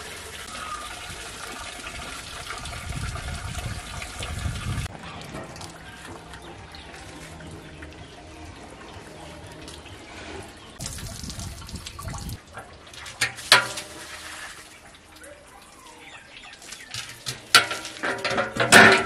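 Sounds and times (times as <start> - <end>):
metal pot clanking: 13.1 - 14.1, 16.9 - 19.0.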